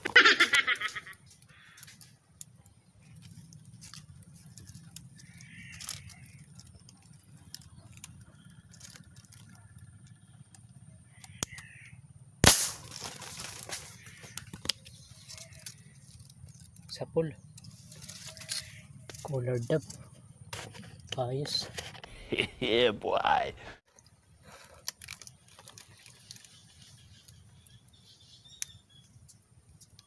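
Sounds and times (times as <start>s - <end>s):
faint bird calls: 0.0s - 12.4s, 13.4s - 20.5s
sharp marble gun shot: 12.4s - 13.2s.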